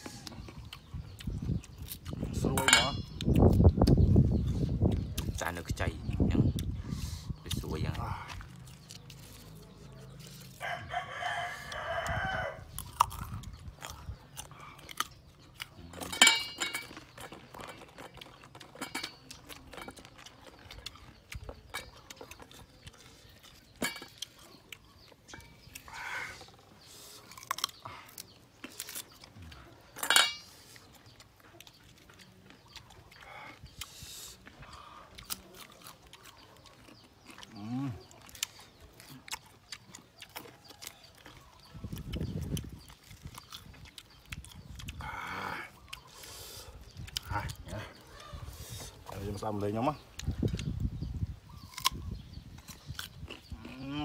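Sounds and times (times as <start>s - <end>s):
chickens clucking: 0.0s - 54.0s
fruit mixed in stone mortar: 0.0s - 54.0s
rooster crowing: 10.6s - 12.7s.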